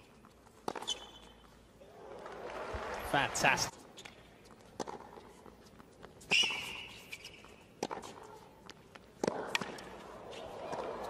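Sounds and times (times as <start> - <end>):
racket hitting tennis ball: 0.6 - 1.3, 4.0 - 5.3, 6.3 - 11.0
shoe squeal: 0.8 - 1.4, 6.2 - 7.7
crowd noise: 9.2 - 11.0.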